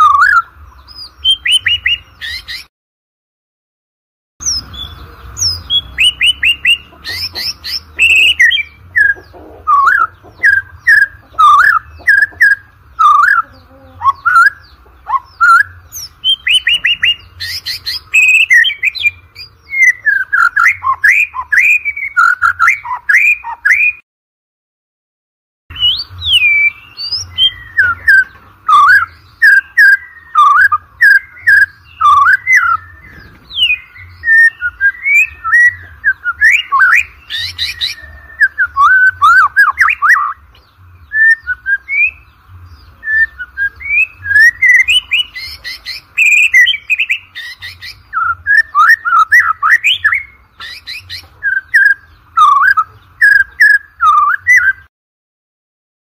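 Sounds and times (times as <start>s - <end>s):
songbird whistling and clicking: 5.4s - 24.0s, 25.7s - 42.2s, 43.0s - 54.9s.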